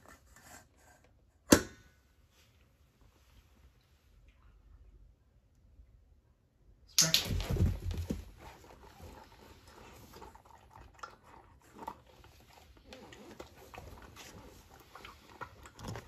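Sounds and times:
puppy chewing: 0:08.4 - 0:16.0.

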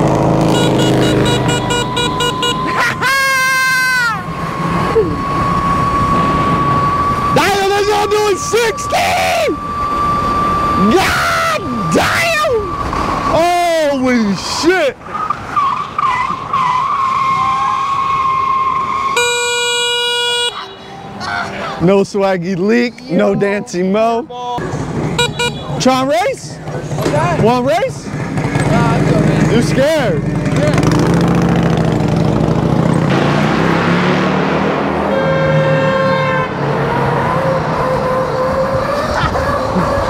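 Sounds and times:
motorcycle engine running: 0:00.0 - 0:02.7, 0:28.0 - 0:33.1
horn flat steady note: 0:00.4 - 0:02.8, 0:35.0 - 0:36.6.

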